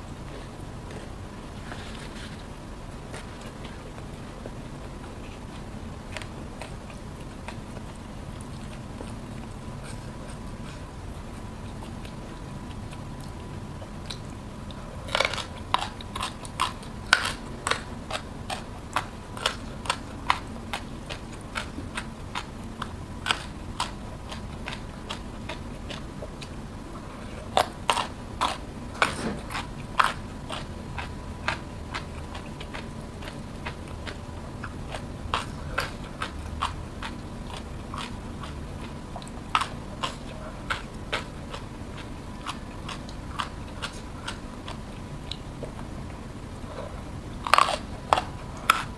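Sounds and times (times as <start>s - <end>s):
soft chewing: 0.0s - 48.9s
crisp crunching bites: 15.0s - 26.1s.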